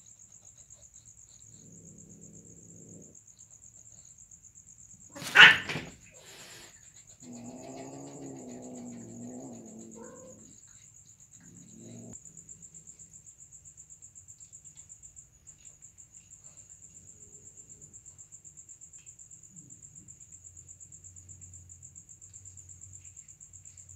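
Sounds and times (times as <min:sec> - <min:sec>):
crickets chirping: 0:00.0 - 0:23.9
cat yowling: 0:05.1 - 0:06.6, 0:09.6 - 0:10.5.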